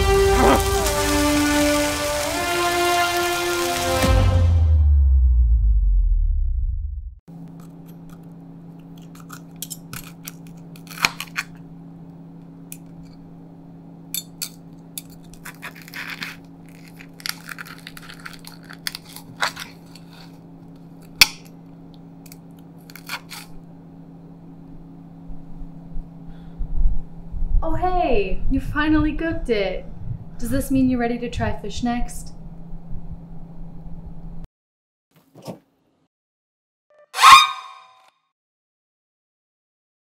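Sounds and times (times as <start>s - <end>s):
low hum: 16.4s - 34.5s.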